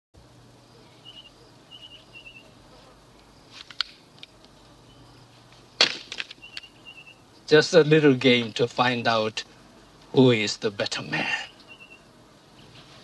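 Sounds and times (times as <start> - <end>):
low steady hum: 0.2 - 13.0.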